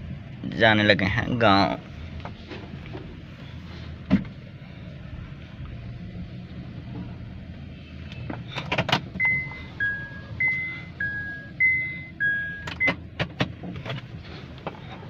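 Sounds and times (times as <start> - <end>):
car cabin hum: 1.4 - 15.0
electronic two-tone beep: 9.2 - 12.9
sharp clicks and knocks: 12.6 - 14.8.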